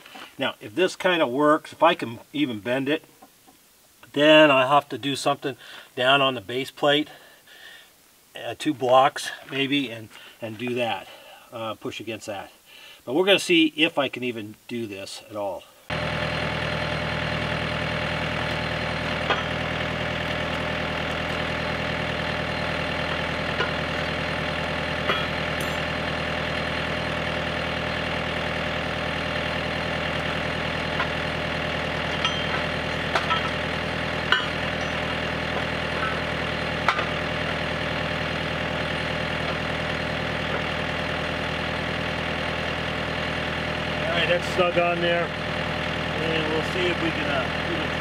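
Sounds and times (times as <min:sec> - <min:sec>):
tractor engine idling: 0:15.9 - 0:48.0
metal clinks: 0:19.2 - 0:19.7, 0:25.0 - 0:26.0, 0:32.0 - 0:33.6, 0:34.2 - 0:35.2, 0:36.0 - 0:36.3.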